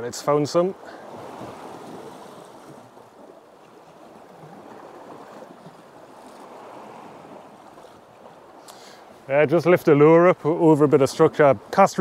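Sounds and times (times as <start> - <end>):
sea water washing against rocks: 0.0 - 12.0.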